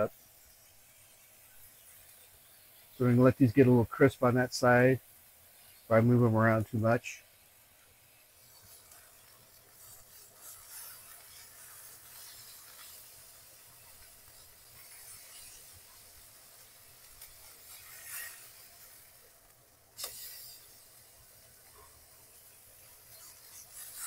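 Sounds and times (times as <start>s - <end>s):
patties sizzling in a skillet: 0.0s - 24.0s
spatula scraping a pan: 8.0s - 24.0s.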